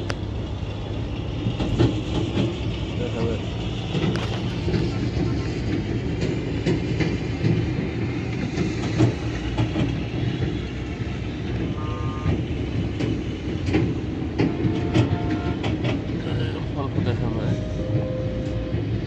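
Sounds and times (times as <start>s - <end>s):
traffic rumble: 0.0s - 19.0s
clattering knocks: 1.4s - 19.0s
short horn toots: 11.8s - 12.4s, 14.4s - 15.7s.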